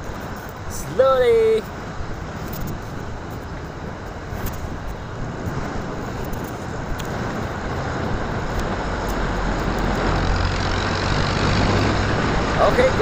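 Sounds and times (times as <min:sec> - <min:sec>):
road and wind noise: 0:00.0 - 0:13.0
motorcycle engine: 0:08.8 - 0:12.8.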